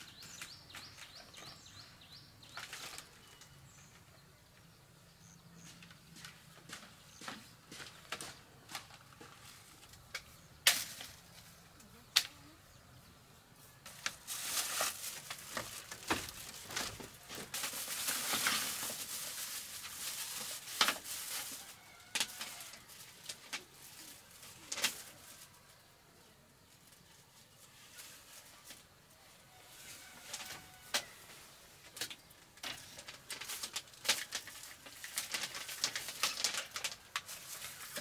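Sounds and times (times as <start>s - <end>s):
plastic bag rustling: 2.4s - 3.6s, 13.9s - 25.8s, 29.6s - 38.0s
footsteps on bamboo floor: 5.6s - 9.9s.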